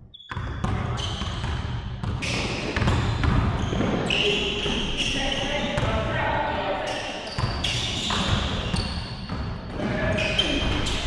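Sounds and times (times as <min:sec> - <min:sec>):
basketball bouncing in echoing gym: 0:00.0 - 0:11.0
shoe squeak: 0:00.1 - 0:01.4, 0:03.6 - 0:05.8, 0:06.8 - 0:11.0.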